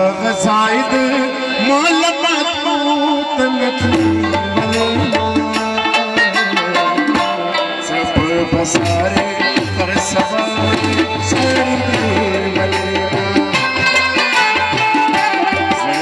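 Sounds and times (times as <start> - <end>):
harmonium notes: 0.0 - 16.0
low tabla bass drum: 2.8 - 16.0
tabla strokes: 3.6 - 16.0.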